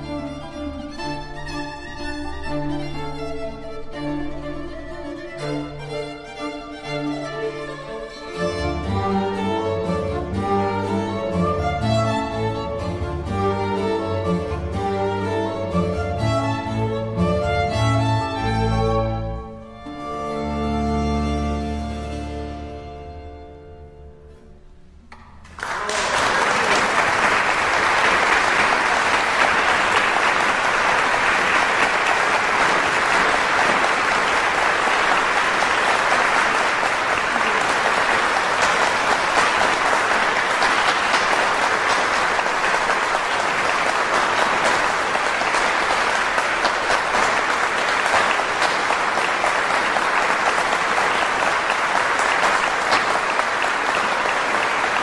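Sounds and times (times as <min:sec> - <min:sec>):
audience applauding: 0:25.4 - 0:55.0.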